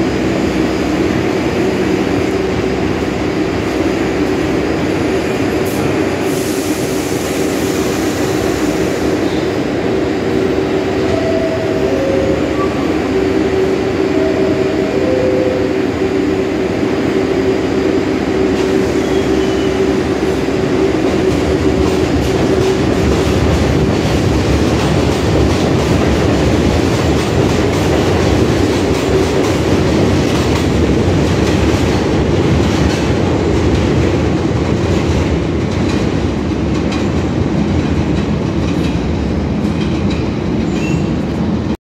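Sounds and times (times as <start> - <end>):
subway train accelerating hum: 0.0 - 41.8
wheels clacking over rail joints: 20.8 - 41.1.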